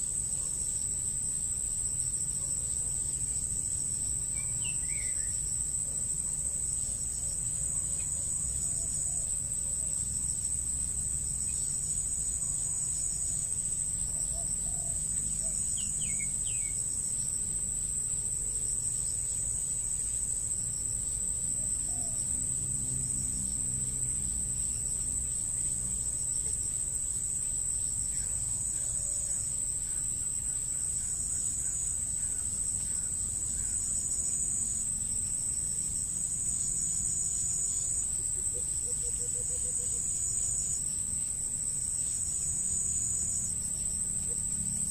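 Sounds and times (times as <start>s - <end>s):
insects droning: 0.0s - 44.9s
insect trilling: 27.8s - 44.9s.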